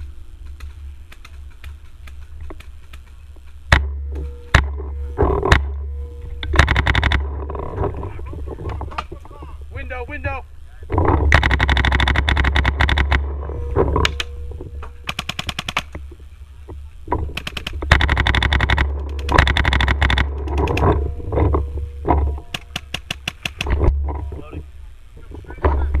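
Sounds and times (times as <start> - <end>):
paintball markers rapid firing: 0.4 - 5.7, 6.5 - 7.4, 11.3 - 13.4, 15.0 - 16.1, 17.3 - 20.9, 22.5 - 23.8.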